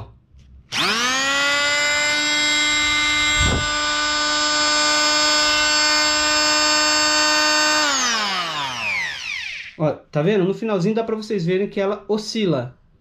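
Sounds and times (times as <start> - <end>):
oscillating multi-tool motor whine: 0.7 - 9.8.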